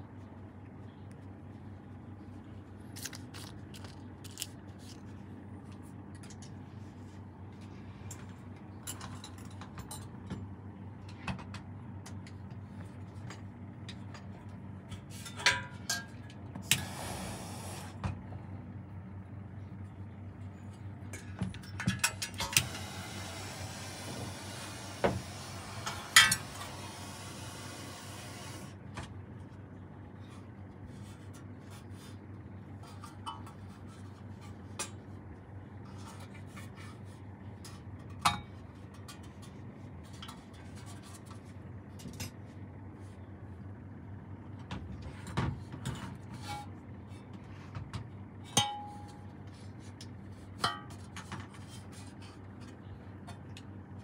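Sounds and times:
steady low hum: 0:00.0 - 0:54.0
hiss: 0:16.8 - 0:18.0, 0:22.7 - 0:28.7.

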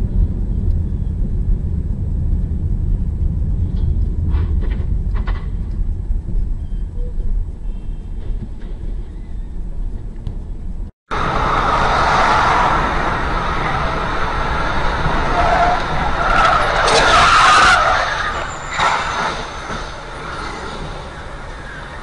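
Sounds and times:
traffic noise: 0:00.0 - 0:22.0
car tyres skidding: 0:11.1 - 0:22.0.

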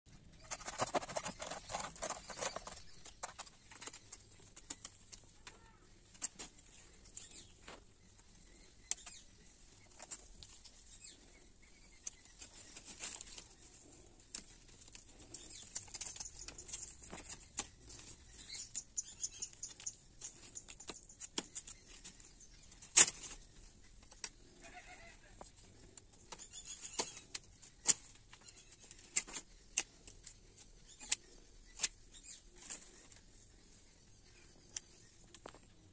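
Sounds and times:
rustles and small clicks: 0:00.1 - 0:24.8, 0:25.4 - 0:35.9
knife rasping on twigs: 0:00.4 - 0:03.7.

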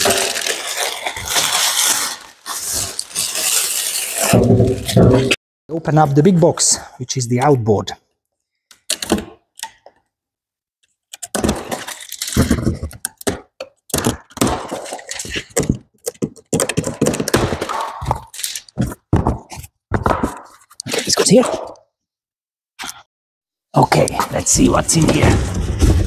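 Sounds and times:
cardboard box tearing and crackling: 0:00.0 - 0:05.3, 0:11.3 - 0:13.2.

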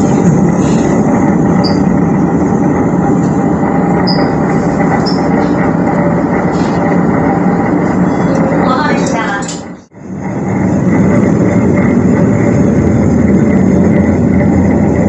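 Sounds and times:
railcar engine rumble: 0:00.0 - 0:15.0
brake squeaks: 0:04.0 - 0:05.4.

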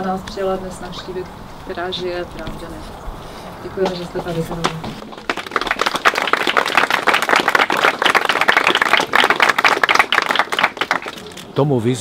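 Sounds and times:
crowd applauding: 0:05.0 - 0:11.4.

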